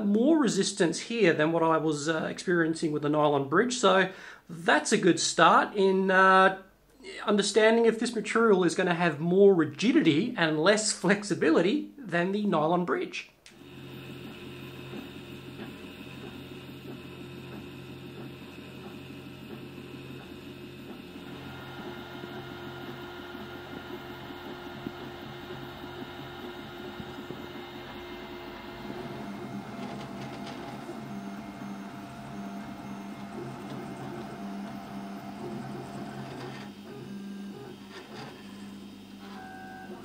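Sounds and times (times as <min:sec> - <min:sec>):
stepper motors whining: 0:13.5 - 0:40.0.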